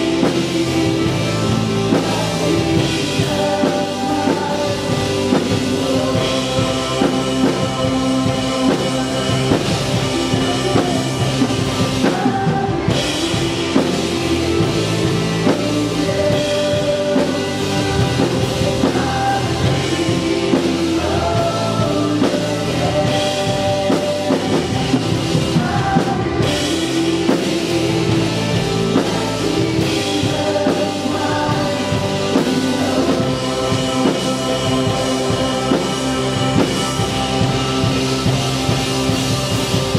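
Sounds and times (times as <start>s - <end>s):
bass guitar: 0.0s - 39.9s
drum kit: 0.0s - 39.9s
electric guitars: 0.0s - 39.9s
keyboard: 0.0s - 39.9s
people singing: 0.0s - 39.9s.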